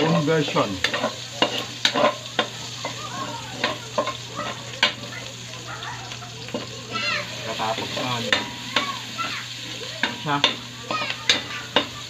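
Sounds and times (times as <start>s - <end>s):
vegetables sizzling in oil: 0.0s - 12.0s
metal spatula clinking against wok: 0.8s - 3.0s.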